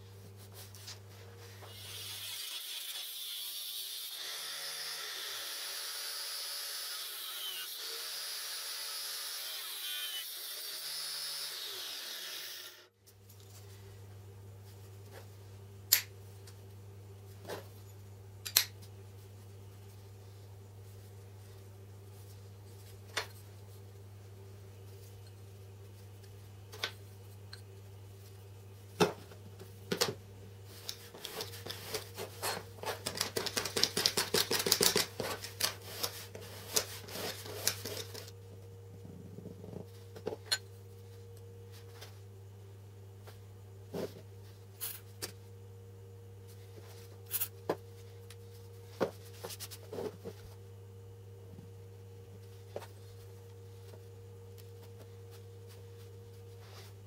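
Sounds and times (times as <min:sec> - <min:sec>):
steady low hum: 0:35.1 - 0:57.0.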